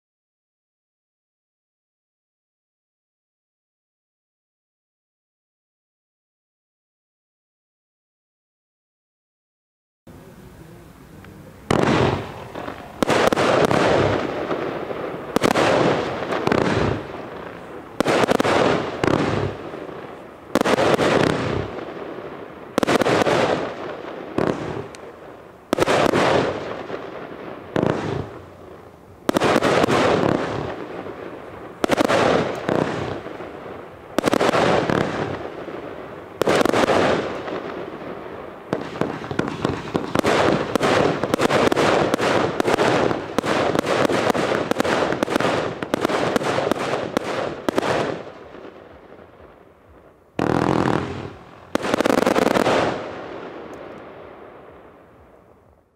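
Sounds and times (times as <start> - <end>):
firework bangs with hiss: 10.9 - 55.8
small firework pops: 15.3 - 22.0, 22.8 - 28.5, 31.8 - 33.6, 34.2 - 38.0, 38.7 - 49.0, 50.4 - 54.3.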